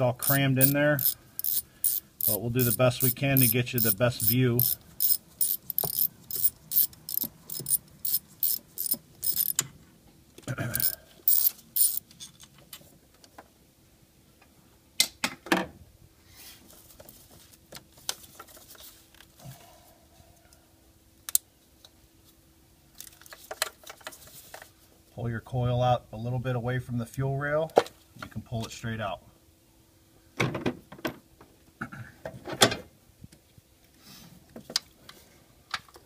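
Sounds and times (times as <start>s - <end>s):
ratchet wrench clicking: 0.1s - 9.6s, 10.7s - 12.0s.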